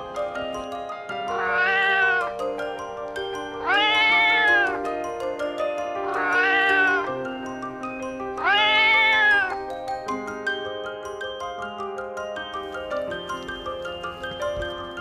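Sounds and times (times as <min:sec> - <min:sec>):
background music: 0:00.0 - 0:15.0
cat meowing: 0:01.3 - 0:02.5, 0:03.6 - 0:04.8, 0:06.0 - 0:07.2, 0:08.4 - 0:09.7.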